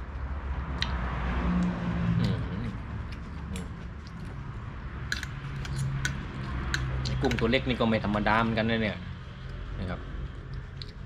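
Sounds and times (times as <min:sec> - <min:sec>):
cutlery clinking against a bowl: 0:06.7 - 0:07.6.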